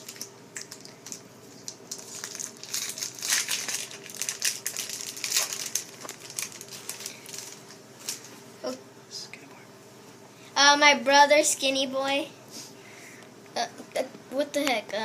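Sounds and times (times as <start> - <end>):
foil wrapper crinkling: 0.0 - 8.3.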